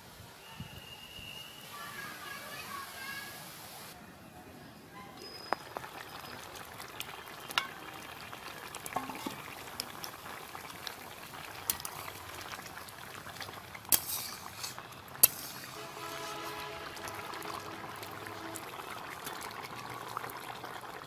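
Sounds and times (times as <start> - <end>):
curry boiling with small pops: 5.3 - 21.0
spatula knocking against wok: 9.0 - 9.4.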